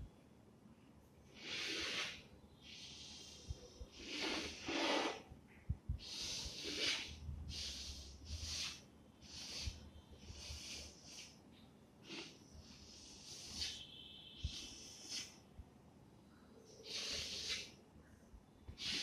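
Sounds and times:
chalk scraping on blackboard: 0:01.4 - 0:03.3, 0:04.0 - 0:05.2, 0:06.0 - 0:11.4, 0:12.1 - 0:15.4, 0:16.8 - 0:17.8, 0:18.8 - 0:19.0.

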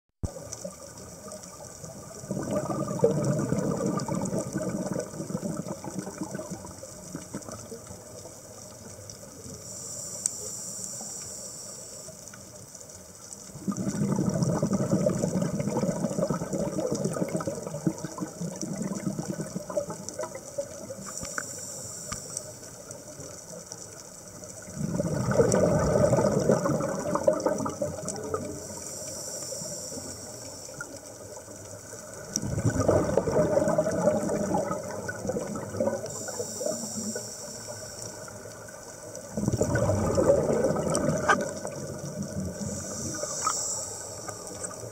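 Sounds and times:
exhaled bubbles rumbling underwater: 0:00.2 - 0:09.7, 0:12.1 - 0:44.9
regulator hissing on inhale: 0:09.6 - 0:12.5, 0:21.0 - 0:22.9, 0:28.4 - 0:31.0, 0:36.0 - 0:39.0, 0:42.4 - 0:44.9.

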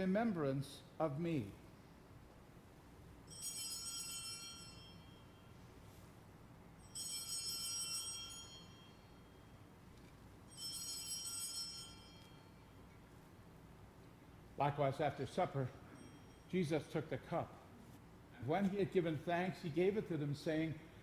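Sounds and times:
altar bell ringing: 0:03.2 - 0:05.7, 0:06.7 - 0:09.8, 0:10.4 - 0:12.9, 0:15.4 - 0:17.0.

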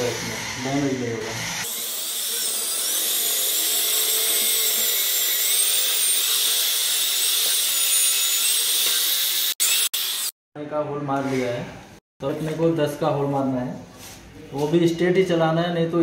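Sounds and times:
electric drill boring into wood: 0:00.0 - 0:10.4.

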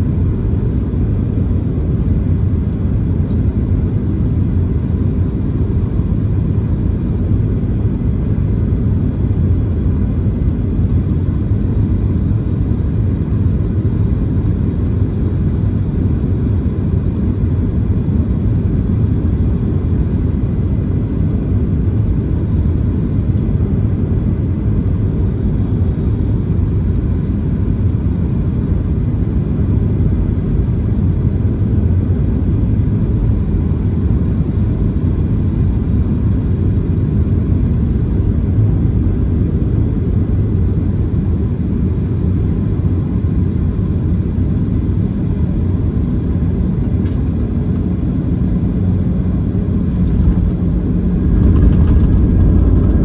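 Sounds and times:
jet engines low rumble: 0:00.0 - 0:53.0
rushing airflow: 0:49.7 - 0:53.0.

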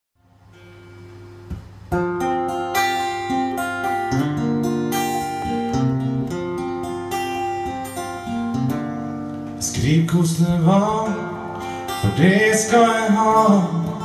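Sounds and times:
acoustic guitar chords: 0:00.2 - 0:14.0.

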